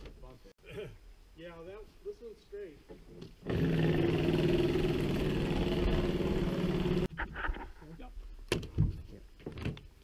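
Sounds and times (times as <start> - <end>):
small engine running: 3.5 - 7.1.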